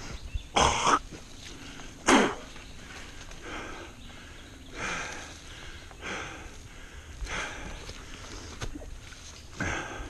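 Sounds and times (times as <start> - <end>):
person breathing hard: 1.5 - 8.6, 9.6 - 10.0.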